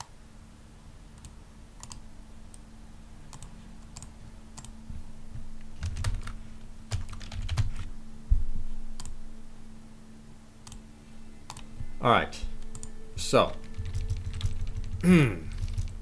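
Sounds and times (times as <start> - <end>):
steady low hum: 0.0 - 16.0
computer keyboard keys clicking: 1.2 - 2.0, 3.3 - 4.7, 5.8 - 7.9, 10.6 - 10.8, 13.7 - 16.0.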